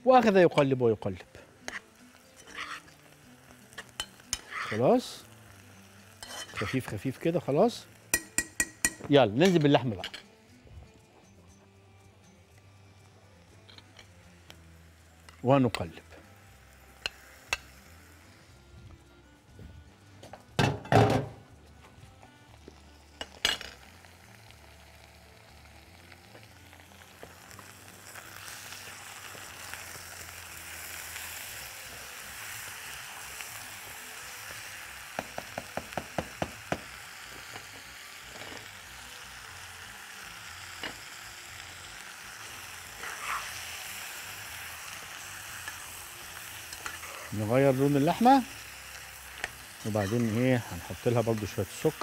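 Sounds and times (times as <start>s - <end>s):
meat sizzling in a pot: 0.0s - 52.0s
metal spoon stirring: 1.7s - 3.0s, 3.8s - 4.8s, 6.2s - 6.9s, 43.0s - 43.5s, 45.6s - 47.3s, 49.4s - 50.6s.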